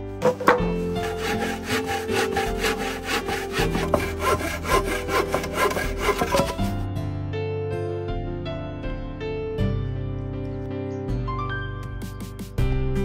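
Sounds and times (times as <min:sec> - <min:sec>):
hand saw cutting wood: 0:00.1 - 0:06.8.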